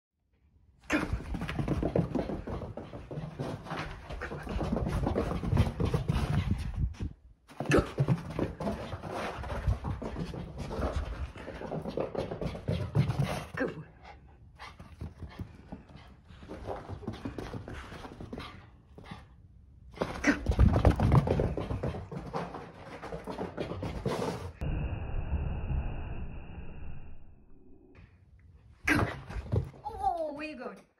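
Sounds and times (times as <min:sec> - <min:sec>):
small dog panting: 0:01.7 - 0:07.0, 0:08.3 - 0:19.4.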